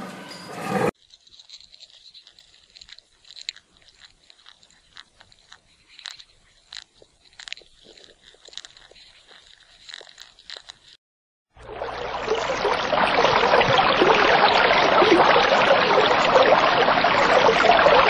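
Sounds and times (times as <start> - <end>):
crackly clicks and crunches: 1.0 - 11.0.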